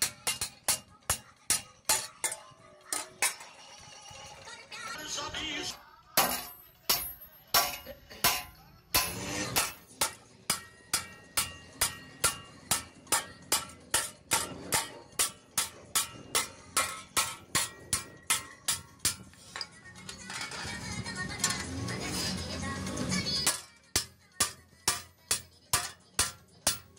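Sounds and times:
hammer striking metal blade on anvil: 0.0s - 3.6s, 6.2s - 19.8s, 23.3s - 26.9s.

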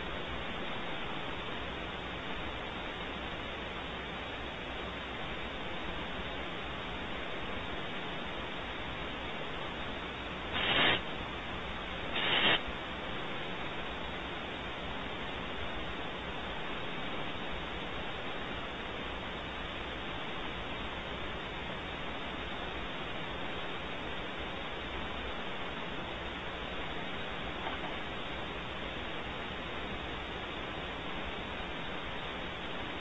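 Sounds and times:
steady static hiss: 0.0s - 33.0s
owl hissing calls: 10.5s - 11.0s, 12.1s - 12.6s.

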